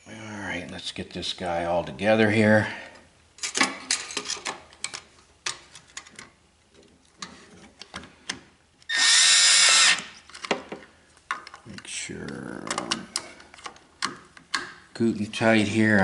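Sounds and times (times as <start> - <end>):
cordless drill whining: 8.9 - 10.2.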